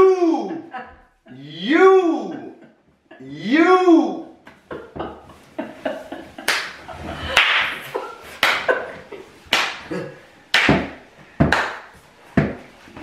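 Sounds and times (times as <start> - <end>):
open-hand slaps: 6.5 - 6.8, 7.4 - 7.8, 8.4 - 8.8, 9.5 - 9.9, 10.5 - 12.6.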